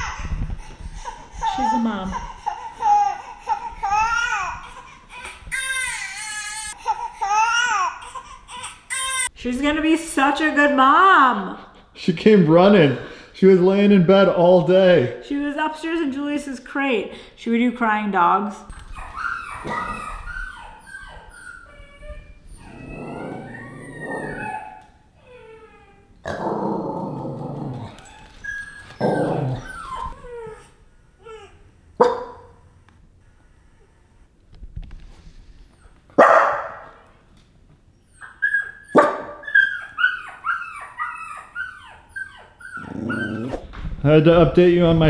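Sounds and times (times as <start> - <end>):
dogs whining and howling: 18.7 - 31.4, 37.9 - 43.8
dog barking: 32.0 - 32.6, 36.2 - 37.0, 38.9 - 39.6.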